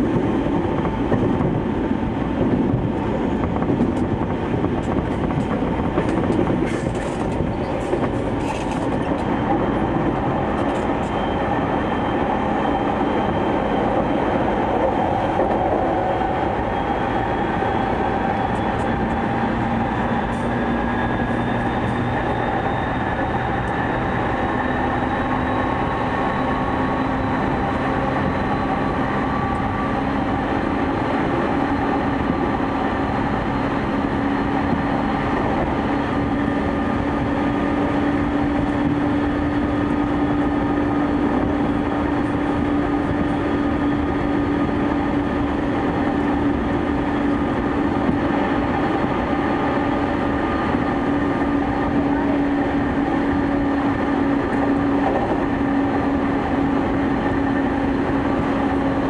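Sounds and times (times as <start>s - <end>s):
traction motor whine: 0.0s - 59.0s
train wheels rumbling on rails: 0.0s - 59.0s.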